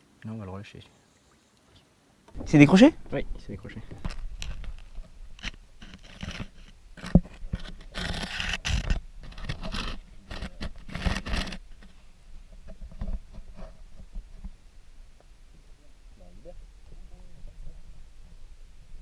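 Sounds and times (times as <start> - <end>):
camera housing scraping underwater: 2.4 - 14.6.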